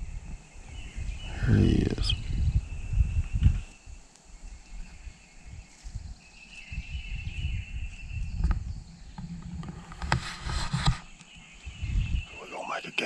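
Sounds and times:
low rumble on microphone: 0:00.0 - 0:12.4.

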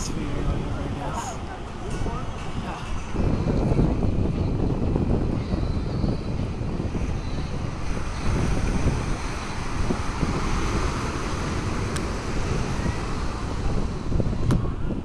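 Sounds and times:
wind buffeting microphone: 0:00.0 - 0:15.0
ocean surf breaking: 0:07.0 - 0:15.0.

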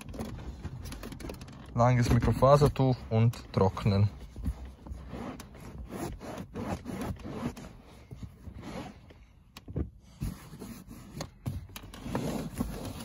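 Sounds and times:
towel rubbing on fabric seat: 0:03.8 - 0:07.8.

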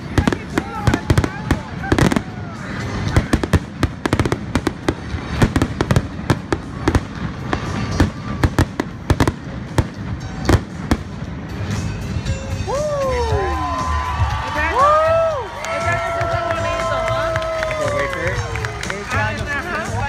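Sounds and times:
fireworks bursting: 0:00.0 - 0:12.6.

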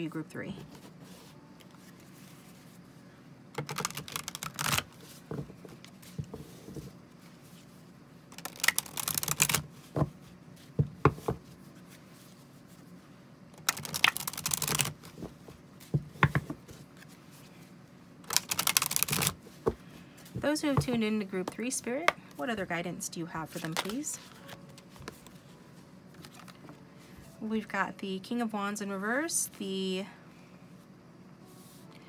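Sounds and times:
cards being shuffled: 0:03.6 - 0:06.8, 0:08.3 - 0:10.0, 0:13.6 - 0:17.2, 0:18.3 - 0:19.8, 0:23.5 - 0:25.4, 0:26.1 - 0:26.8.

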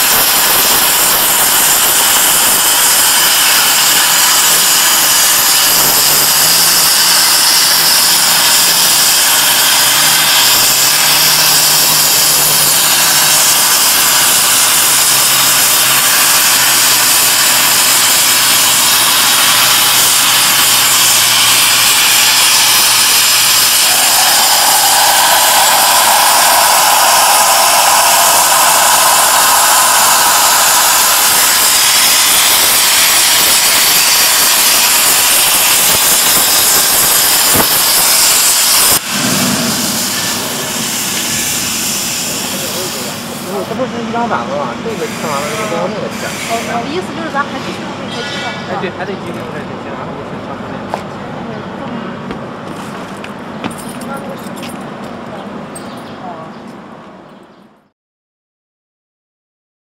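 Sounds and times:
plasma torch hissing: 0:00.0 - 0:43.9, 0:44.8 - 0:47.5
higher tone: 0:22.1 - 0:32.5.

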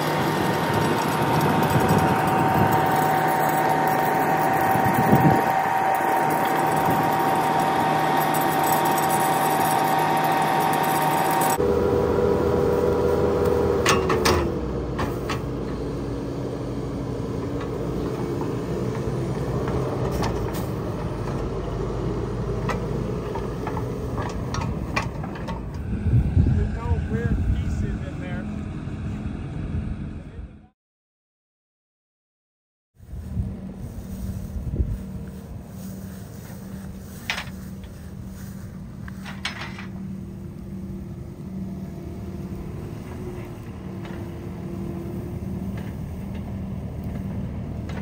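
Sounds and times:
hydraulic drive whine: 0:00.0 - 0:16.2
skid steer running: 0:00.0 - 0:30.6, 0:33.1 - 0:48.0.

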